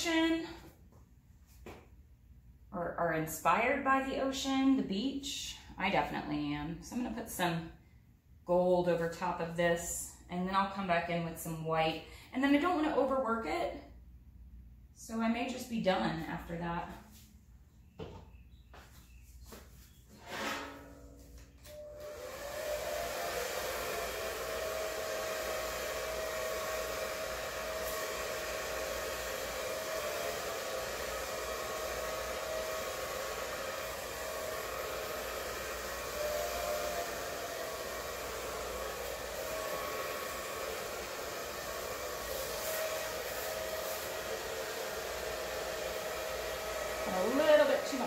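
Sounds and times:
hair dryer blowing: 0.0s - 0.7s, 21.4s - 48.0s.

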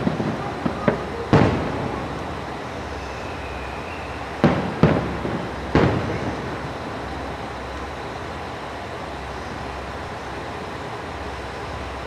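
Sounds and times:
fireworks booming: 0.0s - 7.7s.

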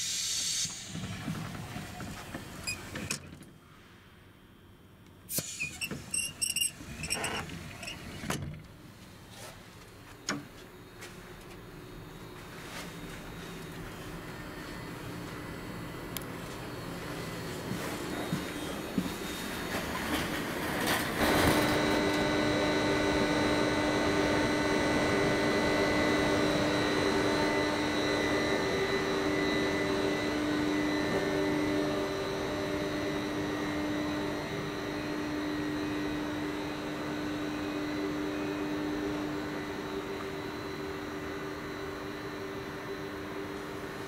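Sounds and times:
train cooling fans humming: 0.0s - 44.0s.

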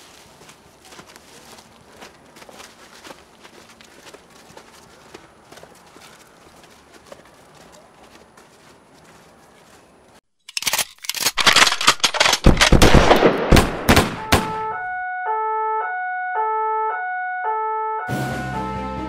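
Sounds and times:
electronic beeping melody: 14.2s - 19.0s.

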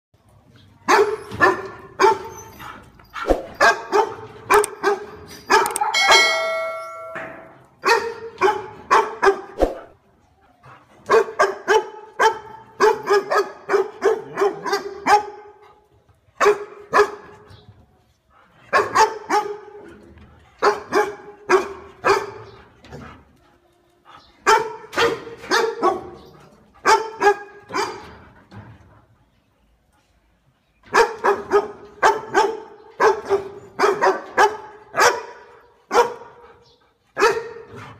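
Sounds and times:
dog barking: 0.9s - 2.3s, 3.2s - 6.1s, 7.8s - 9.8s, 11.1s - 15.6s, 16.4s - 17.3s, 18.7s - 19.8s, 20.6s - 22.6s, 24.4s - 28.0s, 30.9s - 36.4s, 37.2s - 37.7s
held ringing tone: 5.8s - 7.5s.

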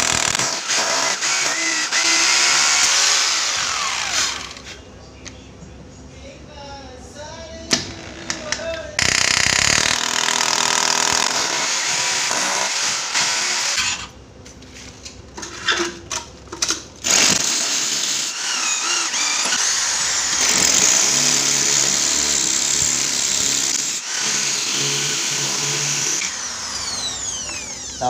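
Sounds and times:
hammer drill boring into floor: 0.0s - 4.6s, 7.9s - 14.1s, 17.0s - 28.0s.

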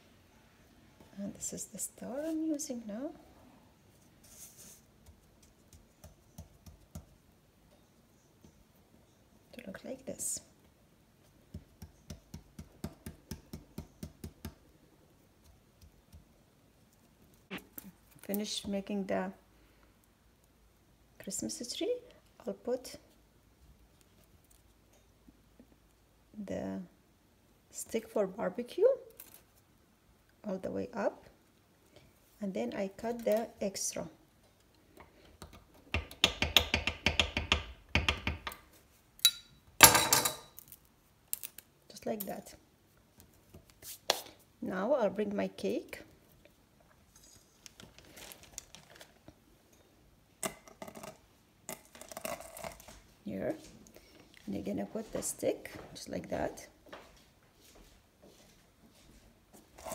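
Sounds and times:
hands tapping fondant: 5.0s - 7.2s, 35.4s - 38.5s.

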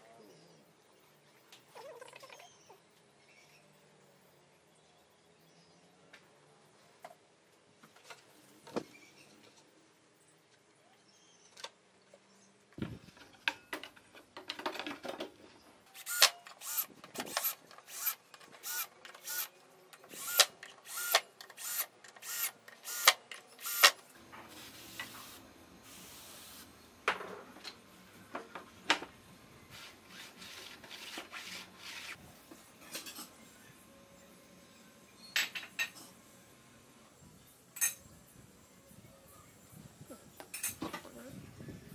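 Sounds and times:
cordless drill driving screws: 16.0s - 19.5s, 20.1s - 24.0s.

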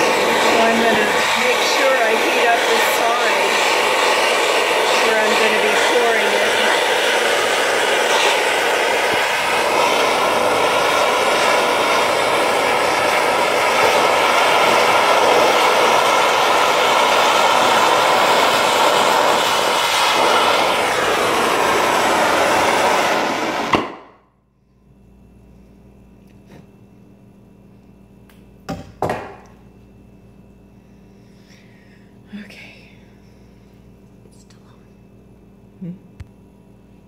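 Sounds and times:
torch flame hissing: 0.0s - 24.1s
torch flame pop: 0.0s - 24.2s.

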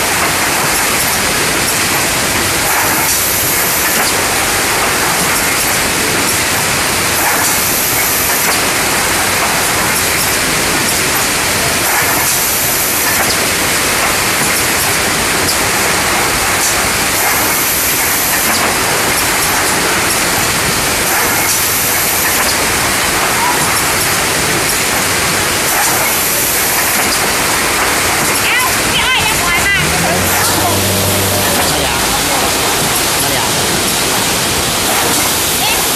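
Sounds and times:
packaging machine running: 0.0s - 35.9s
bright machine hiss: 0.1s - 28.5s.

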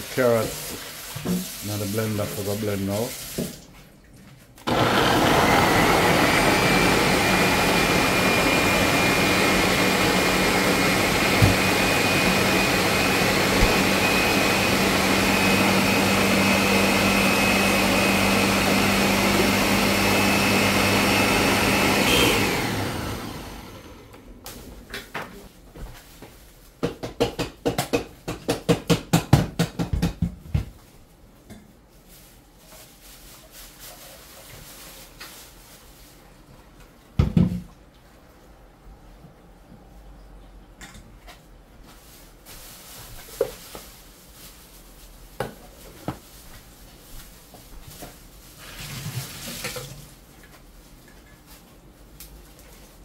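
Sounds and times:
blender motor whine: 4.7s - 24.4s.

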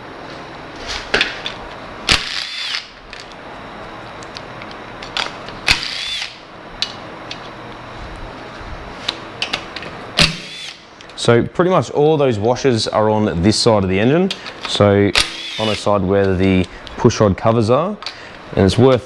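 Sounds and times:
power tool undoing bolts: 2.1s - 2.9s.

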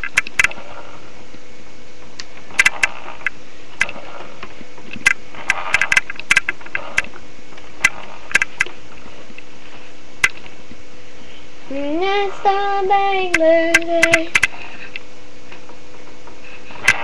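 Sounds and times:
faint steady hum and hiss: 0.0s - 17.0s
sharp clicks and taps: 2.6s - 3.9s, 5.0s - 7.1s, 7.8s - 8.7s, 10.2s - 10.4s, 13.3s - 14.5s.

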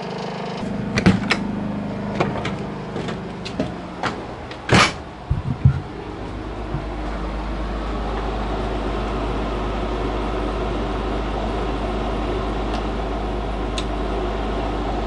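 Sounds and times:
door clatter: 0.9s - 1.5s, 2.1s - 6.0s
low thumps of footsteps: 2.2s - 7.3s.

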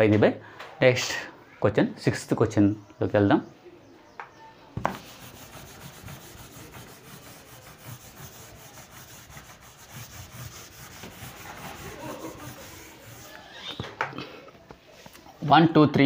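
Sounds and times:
duster scrubbing a whiteboard: 4.8s - 13.9s.

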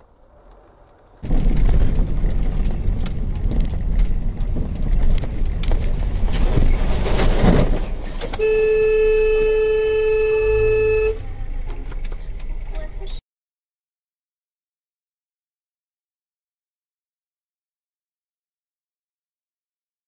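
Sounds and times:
car road and engine rumble: 0.0s - 13.2s
truck passing: 0.0s - 13.2s
vehicle horn blast: 8.4s - 11.3s.

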